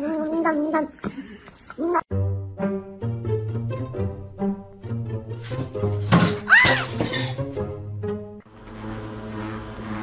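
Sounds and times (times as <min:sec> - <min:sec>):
cat crying: 0:06.5 - 0:07.0.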